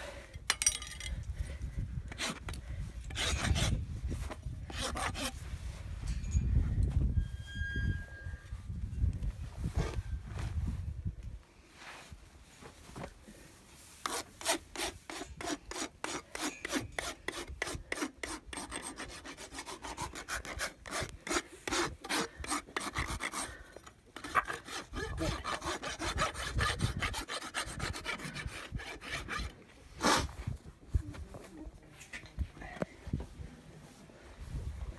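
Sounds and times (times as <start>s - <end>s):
hoof rasp strokes: 2.1s - 5.7s, 13.9s - 30.4s.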